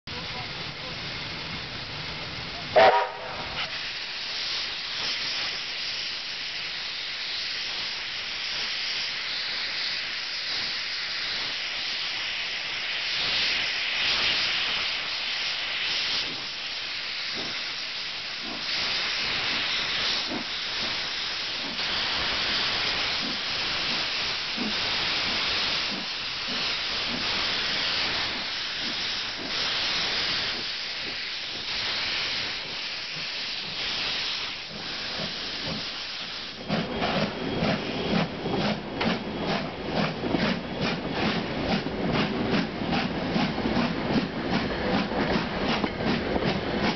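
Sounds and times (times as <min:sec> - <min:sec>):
steam hissing: 0:00.1 - 0:46.9
steam locomotive whistle toot: 0:02.7 - 0:03.8.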